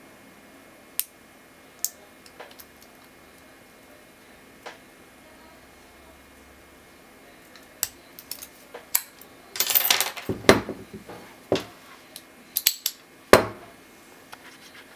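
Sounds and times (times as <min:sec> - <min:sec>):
padlock knocking on wooden table: 0:10.3 - 0:11.7.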